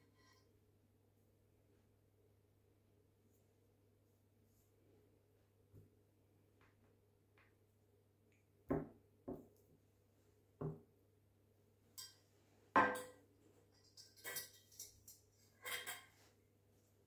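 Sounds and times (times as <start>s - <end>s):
fork clinking on ceramic dishes: 12.0s - 12.2s, 13.8s - 16.2s
ceramic bowl set down clattering: 12.8s - 13.2s.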